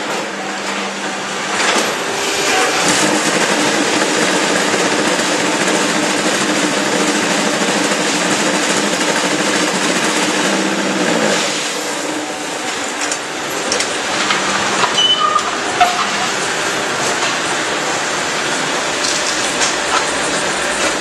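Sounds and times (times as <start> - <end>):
machine hum: 0.0 - 21.0
brief squeaks: 14.9 - 16.0.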